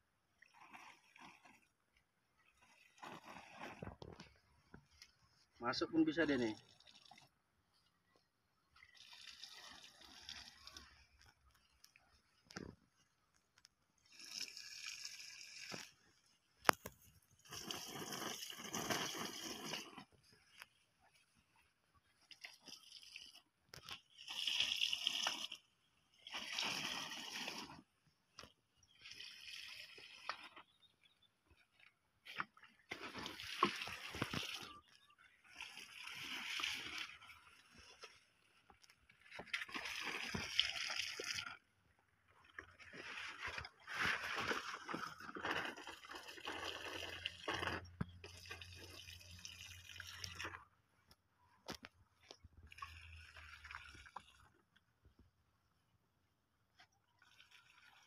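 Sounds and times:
liquid gushing onto soil: 0.4 - 4.2, 8.8 - 11.8, 14.0 - 20.8, 22.2 - 27.9, 28.8 - 30.7, 32.4 - 41.6, 42.4 - 50.6, 52.6 - 54.6, 57.2 - 58.0
liquid spurting with a hiss: 8.9 - 11.0, 14.0 - 16.0, 16.8 - 20.2, 24.1 - 27.9.

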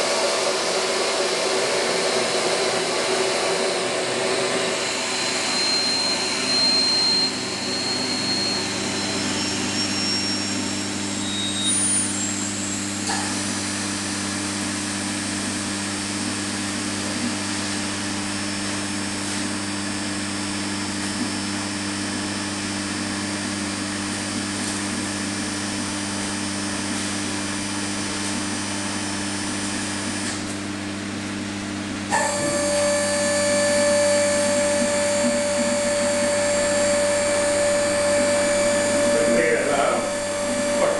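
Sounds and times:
machine whine: 0.0 - 40.9
motor hum: 20.8 - 40.9
higher tone: 32.1 - 40.9.

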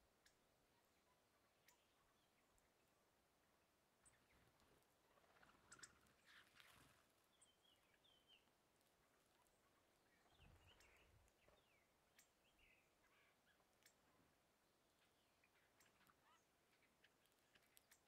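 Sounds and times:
small birds chirping: 0.0 - 18.0
faint clicks: 1.6 - 1.8, 12.1 - 12.4, 13.5 - 14.1, 15.5 - 18.0.

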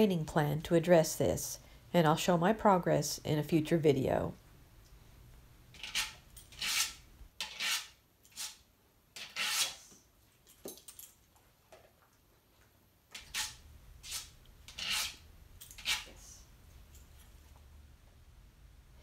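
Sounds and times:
dog nails rasping on sandpaper: 5.8 - 8.6, 13.2 - 16.2.

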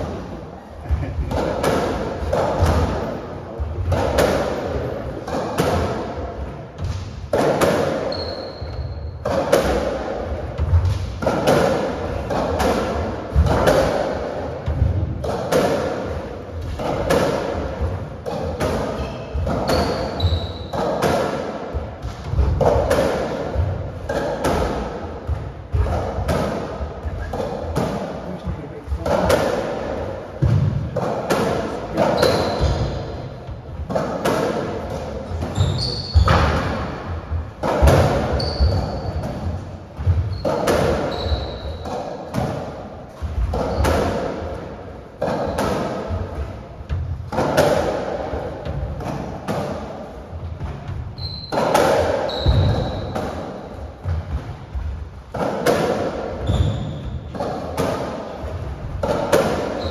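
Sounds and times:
ball hitting rackets and walls: 0.9 - 59.9
shoe squeaks on wooden floor: 8.1 - 9.2, 19.0 - 20.8, 32.2 - 33.2, 35.5 - 36.5, 38.3 - 39.2, 40.3 - 41.8, 51.2 - 53.2, 56.4 - 57.3.

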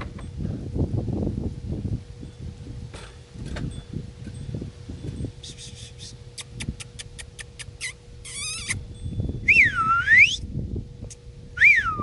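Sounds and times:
high squeaky kissing sounds: 5.5 - 8.8.

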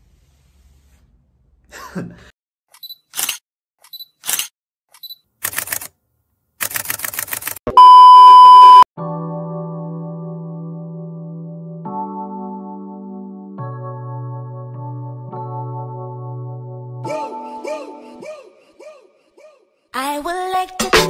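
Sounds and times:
long high beep: 7.7 - 8.9
short high beep: 7.7 - 8.9
soft electric piano music: 9.0 - 17.0.

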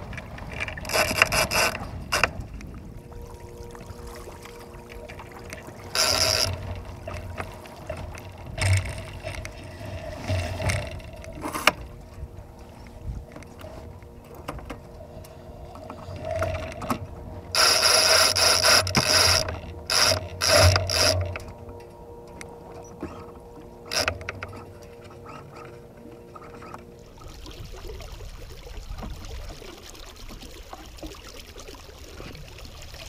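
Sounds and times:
rope rasping through ratcheting hardware: 5.9 - 7.2, 17.6 - 21.5.

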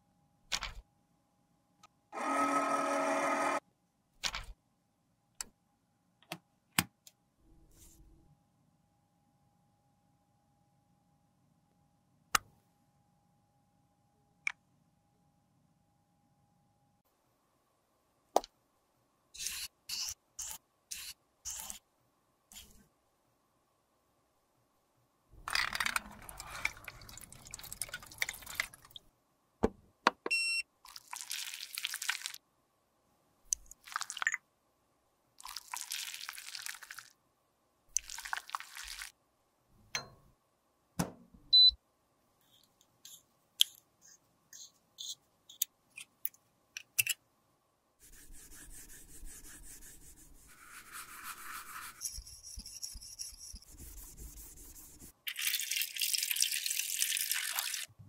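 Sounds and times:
makeup scraping and rubbing: 48.0 - 55.2.

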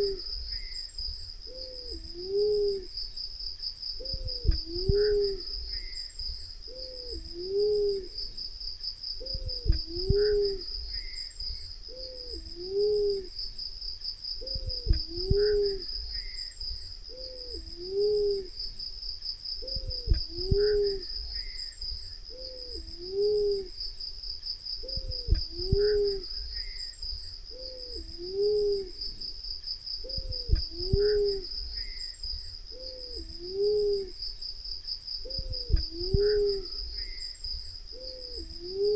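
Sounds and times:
dove cooing: 0.0 - 0.7, 1.5 - 3.0, 4.0 - 6.0, 6.7 - 8.4, 9.2 - 11.2, 11.9 - 13.4, 14.4 - 16.4, 17.1 - 18.6, 19.6 - 21.5, 22.3 - 23.8, 24.8 - 26.8, 27.5 - 29.3, 30.0 - 32.0, 32.7 - 34.2, 35.2 - 37.2, 37.9 - 38.9.

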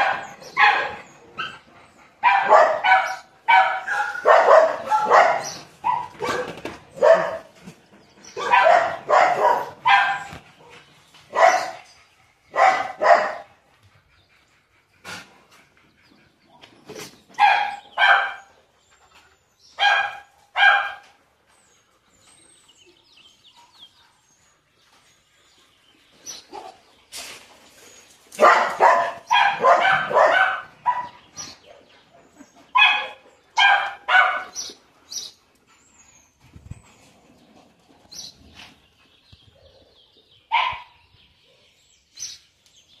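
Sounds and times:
dogs barking: 0.0 - 7.6, 8.2 - 13.6, 17.3 - 18.6, 19.8 - 21.2, 28.4 - 35.3, 39.7 - 41.8.

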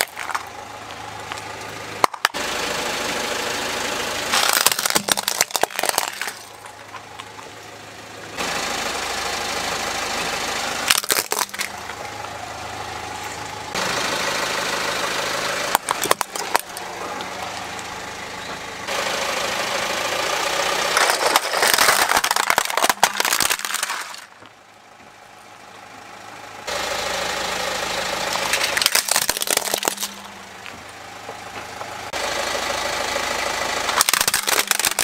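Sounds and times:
plastic toys cracking under tyre: 0.0 - 0.6, 1.2 - 2.4, 4.3 - 7.4, 10.9 - 12.0, 15.7 - 16.8, 20.9 - 24.4, 28.3 - 30.3, 33.9 - 35.0
car engine idling: 0.0 - 35.0.

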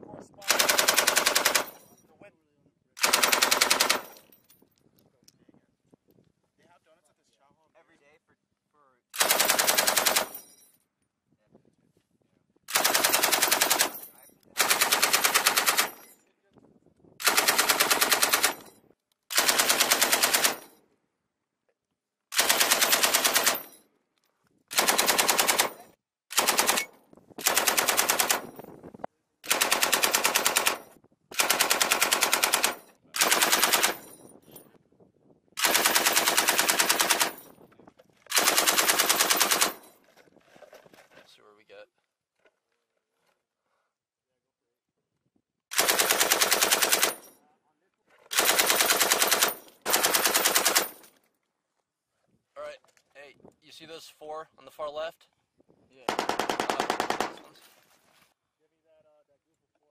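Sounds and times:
machine gun bursts: 0.5 - 1.8, 3.0 - 4.1, 9.2 - 10.3, 12.7 - 14.0, 14.6 - 16.0, 17.2 - 18.7, 19.3 - 20.7, 22.3 - 23.7, 24.7 - 28.5, 29.5 - 30.8, 31.4 - 34.0, 35.6 - 37.4, 38.3 - 39.8, 45.7 - 47.2, 48.3 - 51.1, 56.1 - 57.5.

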